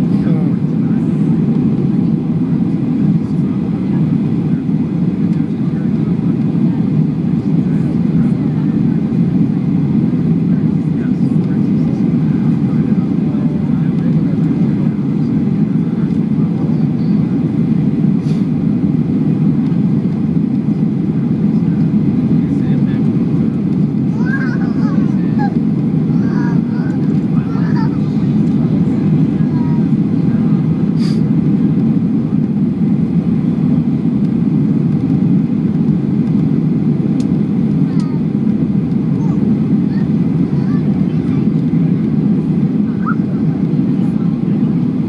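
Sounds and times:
airliner engines rumbling: 0:00.0 - 0:45.0
rushing air in cabin: 0:17.3 - 0:34.0.

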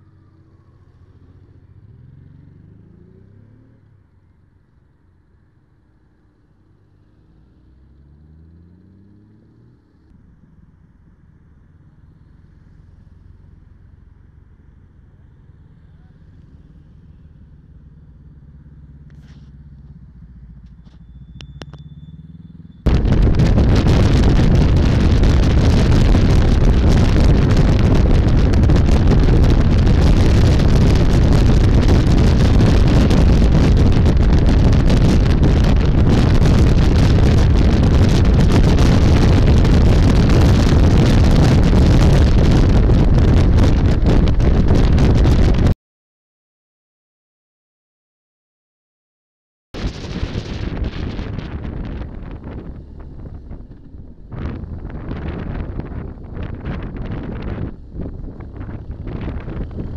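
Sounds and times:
motorcycle engines at low speed: 0:00.0 - 0:45.8, 0:49.8 - 0:59.9
wind rush at high speed: 0:22.9 - 0:45.8, 0:49.8 - 0:59.9.

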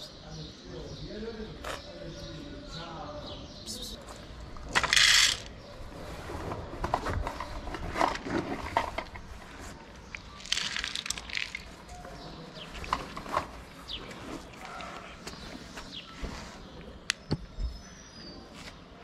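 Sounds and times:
dry cat food rattling into dish: 0:04.7 - 0:05.5, 0:10.1 - 0:11.9.

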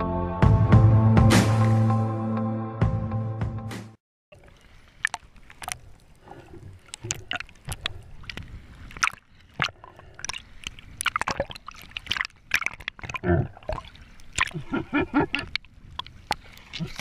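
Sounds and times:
underwater clicks and crackles: 0:04.3 - 0:17.0.

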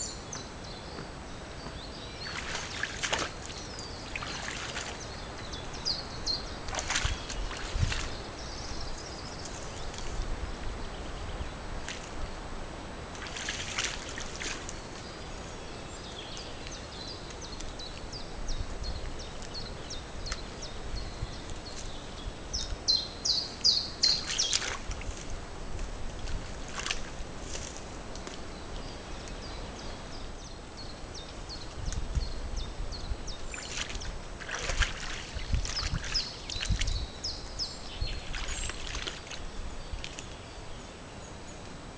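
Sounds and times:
small birds chirping and singing: 0:00.0 - 0:11.5, 0:28.5 - 0:41.6
moose splashing in shallow water: 0:02.2 - 0:05.1, 0:06.6 - 0:08.2, 0:13.1 - 0:14.7, 0:24.1 - 0:25.1, 0:33.5 - 0:37.0, 0:38.1 - 0:40.2.

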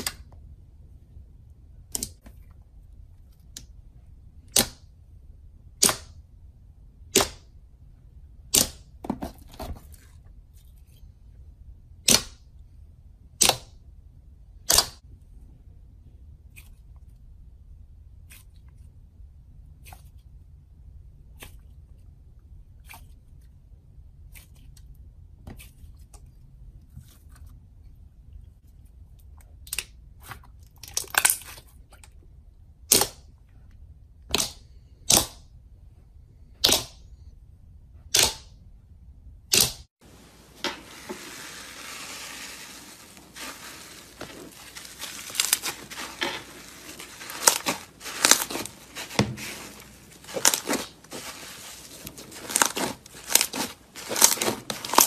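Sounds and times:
slime crackling when kneaded: 0:40.9 - 0:55.0.

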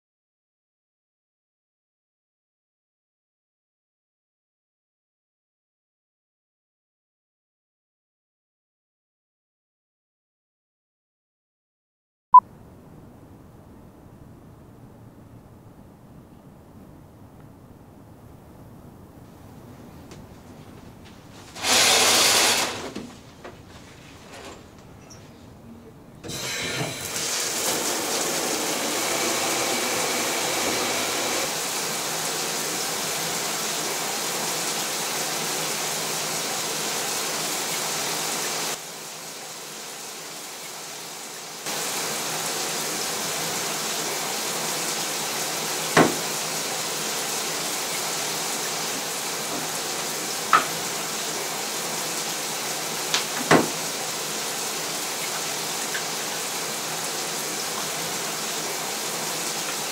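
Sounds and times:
shower water spray hissing: 0:21.6 - 0:22.9, 0:26.2 - 0:59.9.

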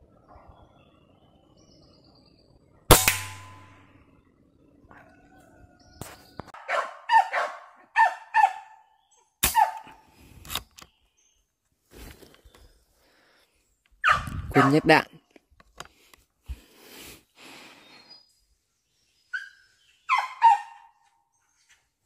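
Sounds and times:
air rifle shot: 0:02.9 - 0:03.9, 0:09.4 - 0:09.8.

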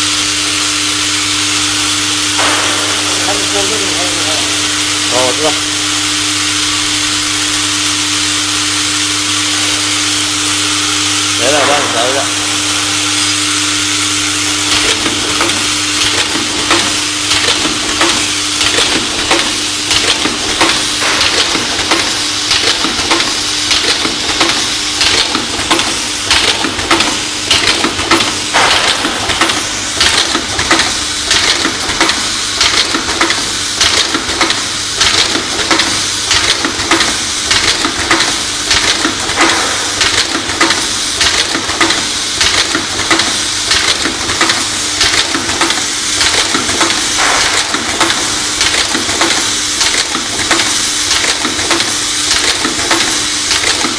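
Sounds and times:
steady hum and hiss: 0:00.0 - 0:53.9
machine clicks and knocks: 0:14.6 - 0:53.9.

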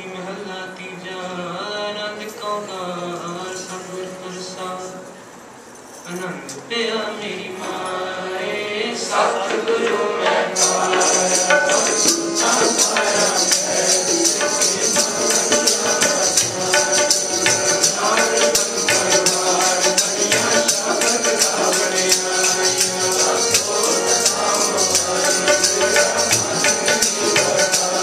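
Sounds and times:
held melodic tones: 0:09.2 - 0:28.0
tabla: 0:09.4 - 0:28.0
jingling percussion: 0:10.3 - 0:28.0.

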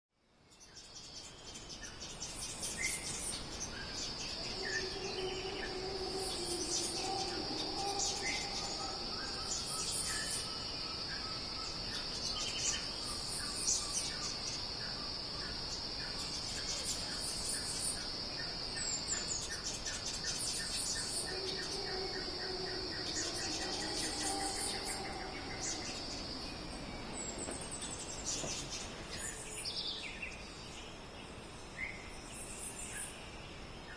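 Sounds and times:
insects droning: 0:00.4 - 0:33.9
birds chirping and calling: 0:01.2 - 0:14.7, 0:18.8 - 0:30.4.

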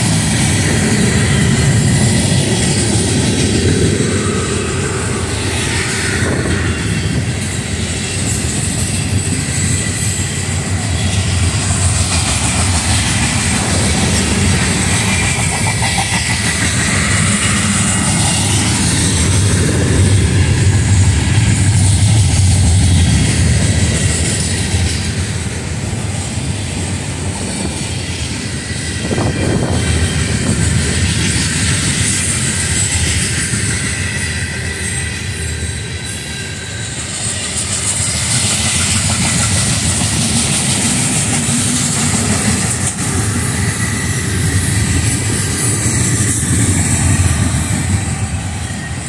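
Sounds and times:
freight train wheels rumbling on rails: 0:00.0 - 0:49.0.

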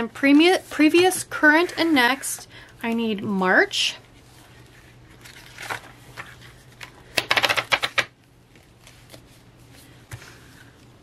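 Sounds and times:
paper pages riffled: 0:04.3 - 0:08.0
page taps and rustles: 0:05.2 - 0:09.3.

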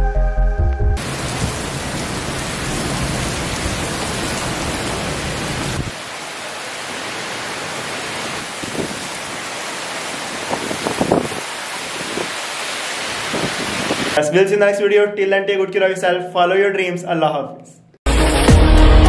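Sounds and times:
heavy rain hiss: 0:01.0 - 0:14.2
wind rumble on microphone: 0:08.6 - 0:09.1, 0:10.4 - 0:12.4, 0:13.2 - 0:14.2.

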